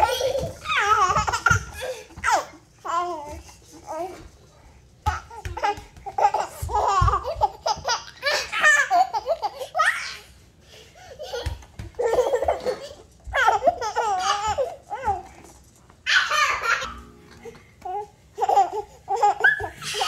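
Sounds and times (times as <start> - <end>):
baby laughing: 0.0 - 3.1, 5.4 - 10.3, 11.0 - 15.3, 16.1 - 17.0, 17.9 - 20.0.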